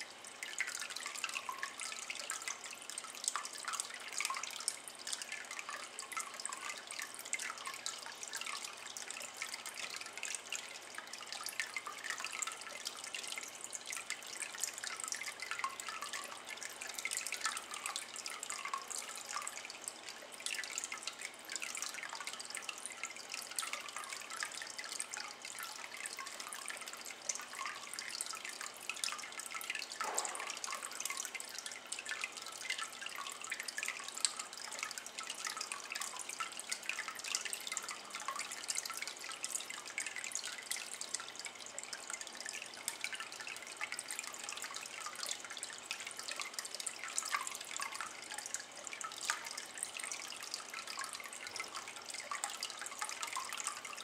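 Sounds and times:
water trickling into a basin: 0.0s - 54.0s
deep water plop: 30.0s - 31.2s.

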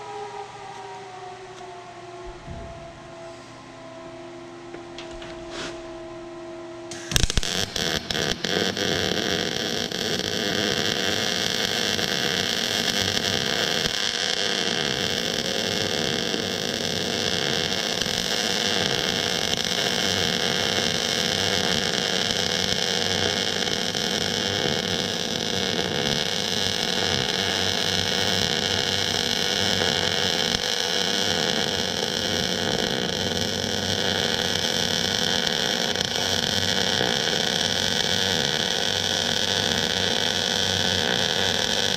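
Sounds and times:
welding arc crackling hiss: 6.9s - 41.9s.

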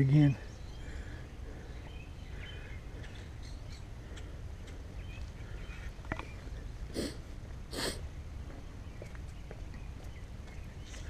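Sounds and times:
person sniffing: 6.9s - 8.0s.

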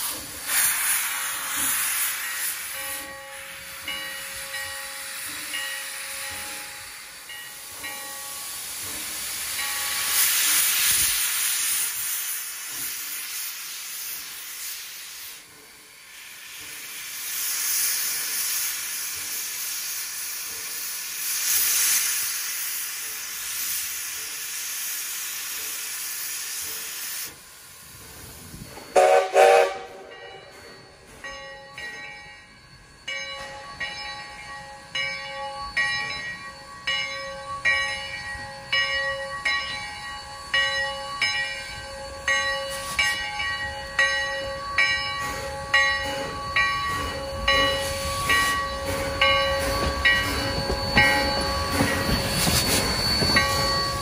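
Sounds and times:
steam locomotive hissing: 0.0s - 54.0s
locomotive bell ringing: 2.2s - 10.6s, 28.6s - 54.0s
steam whistle: 28.9s - 30.2s.

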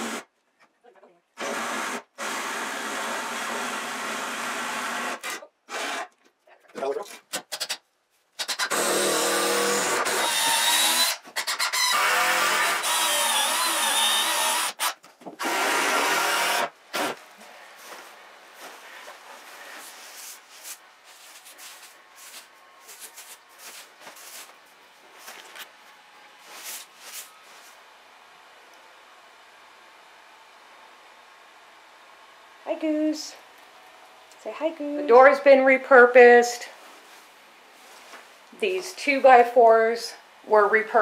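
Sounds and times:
power drill boring into wood: 0.0s - 0.3s, 1.4s - 6.1s, 8.4s - 17.2s
rustling in wood-shaving bedding: 17.3s - 27.9s, 36.8s - 38.4s.

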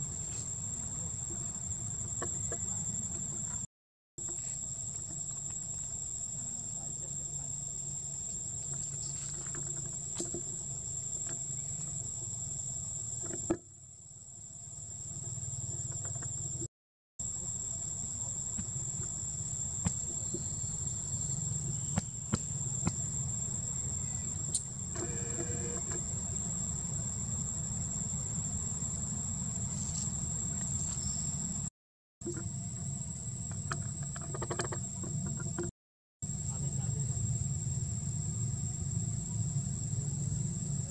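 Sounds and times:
insects buzzing: 4.2s - 16.6s, 17.2s - 31.7s.

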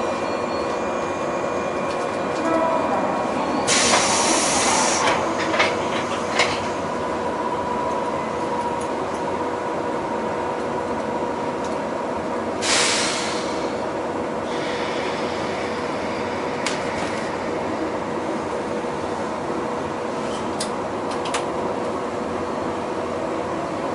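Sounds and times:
train equipment hum: 0.0s - 23.9s
compressed air hiss: 3.7s - 5.2s, 12.6s - 13.6s.

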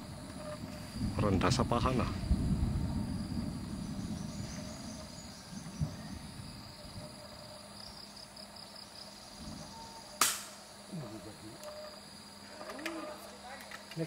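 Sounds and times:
insects chirring: 0.0s - 14.0s
air rifle shot: 10.2s - 10.6s.

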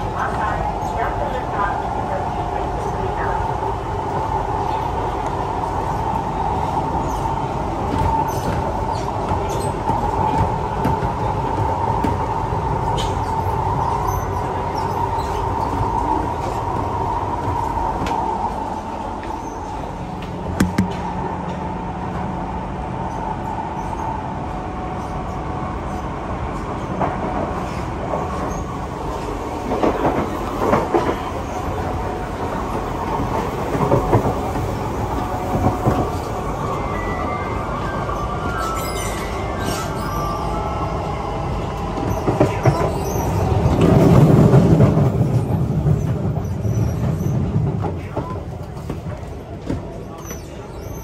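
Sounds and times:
train wheels rumbling on rail: 0.0s - 51.0s
sharp clicks and knocks: 20.6s - 21.1s.

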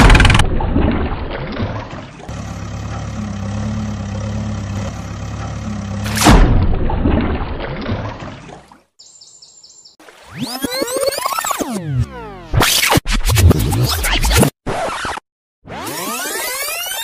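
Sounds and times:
diesel engine idling: 2.3s - 6.1s.

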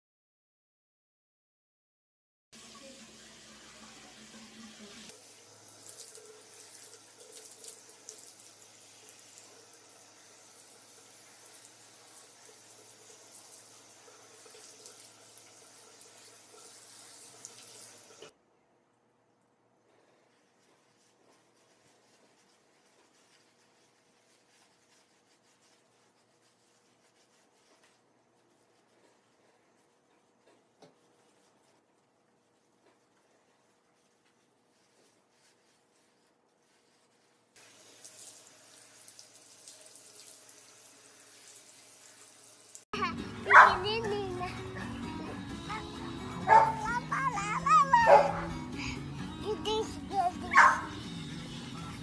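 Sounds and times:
shower water spattering on dog: 2.6s - 18.3s, 37.6s - 42.9s
hands rubbing lather into wet fur: 4.8s - 18.2s, 20.0s - 40.7s, 43.3s - 52.0s.

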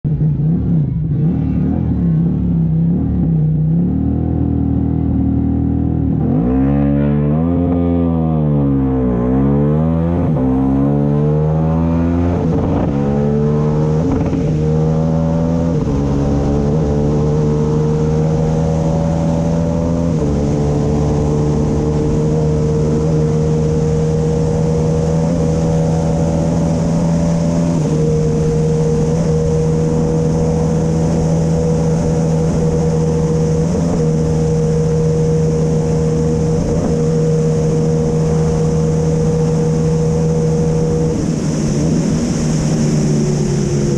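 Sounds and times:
motorcycle engine revving hard: 0.3s - 43.9s
wind rush on microphone: 9.9s - 43.9s.

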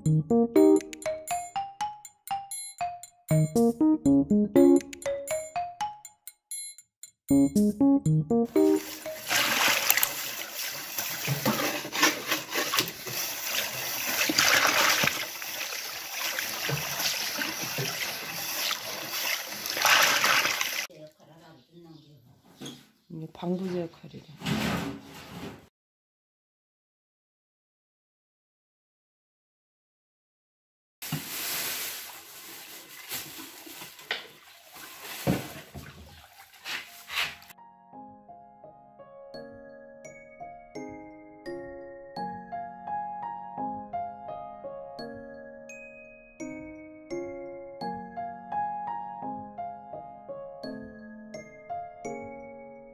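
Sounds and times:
water sloshing in plastic basin: 8.8s - 20.9s, 31.0s - 37.5s.

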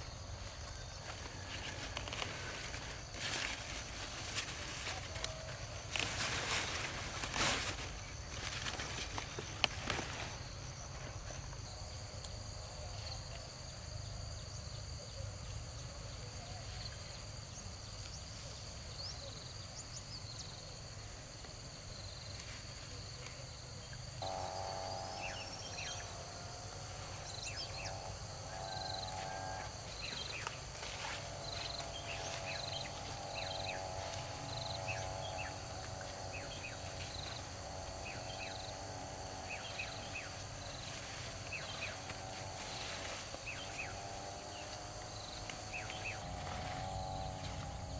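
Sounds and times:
high-pitched insect chorus: 0.0s - 47.9s.

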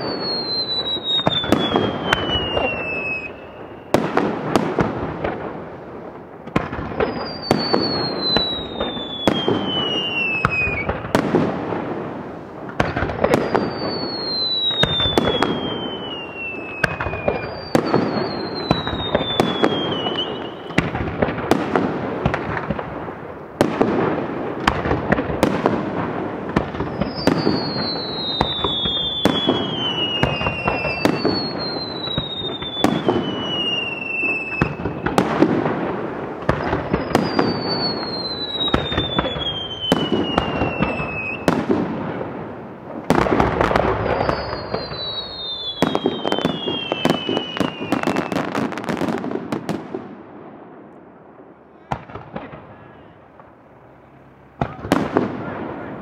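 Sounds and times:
falling firework whistles: 0.0s - 5.0s, 6.6s - 11.8s, 12.8s - 22.8s, 24.6s - 42.4s, 43.0s - 49.8s
firework shell bursts and crackling: 0.0s - 50.1s.

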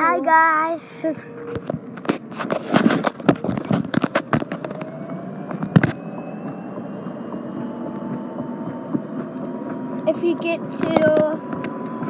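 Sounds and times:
electric motor whine: 0.8s - 12.0s
sharp knocks and crackles: 1.3s - 12.0s.

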